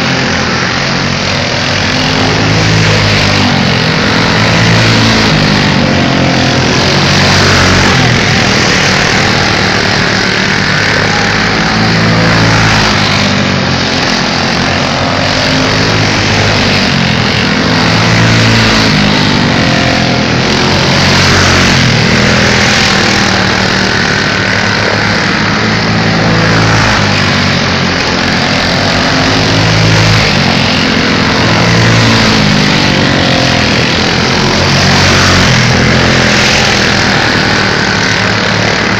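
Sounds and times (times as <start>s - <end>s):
race car engines passing: 0.0s - 38.9s.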